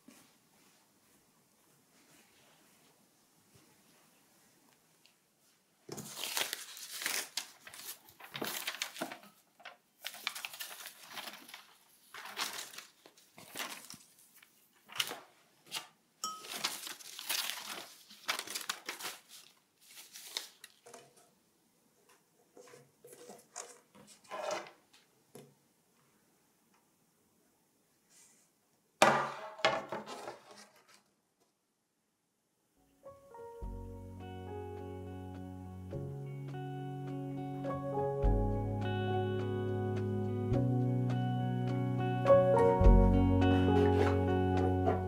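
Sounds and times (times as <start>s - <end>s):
packaging wrap crinkling: 5.9s - 21.1s.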